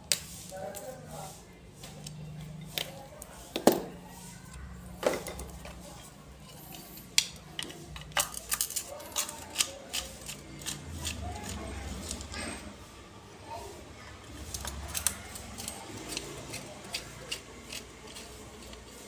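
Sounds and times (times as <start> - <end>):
pliers snapping wire: 14.5 - 18.8.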